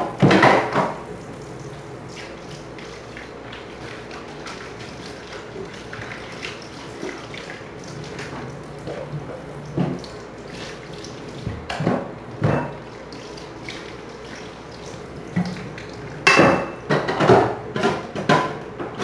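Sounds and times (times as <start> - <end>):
water running in sink: 0.0 - 19.0
dishes clattering into rack: 11.7 - 12.8, 16.2 - 19.0.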